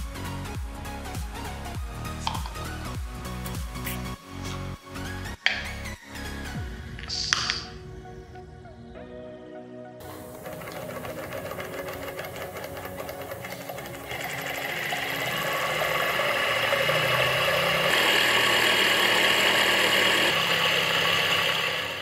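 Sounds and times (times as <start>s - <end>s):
hot-air engine clattering and whining: 10.0s - 22.0s.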